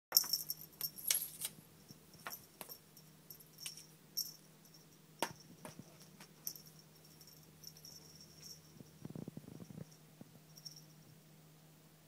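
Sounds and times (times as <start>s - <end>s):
metal collar tag jingling: 0.1s - 9.0s
faint low hum: 0.1s - 12.0s.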